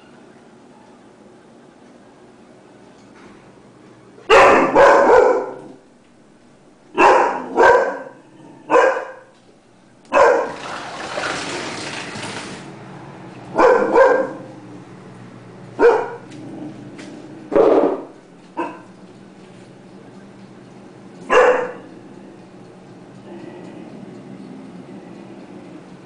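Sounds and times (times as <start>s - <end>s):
dog barking deeply: 4.3s - 5.8s, 6.9s - 9.3s, 10.1s - 10.8s, 13.6s - 14.5s, 15.8s - 16.6s, 17.5s - 18.9s, 21.3s - 21.9s.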